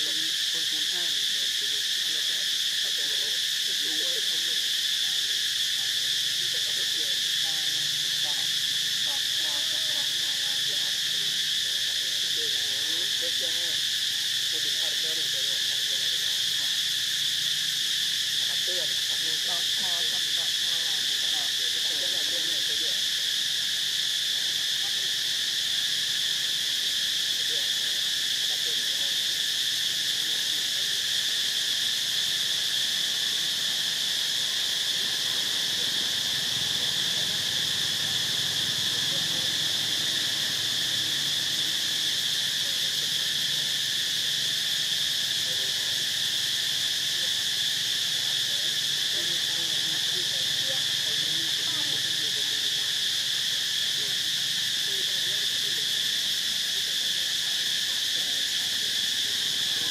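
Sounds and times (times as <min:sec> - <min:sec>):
forest insects droning: 0:00.0 - 0:59.9.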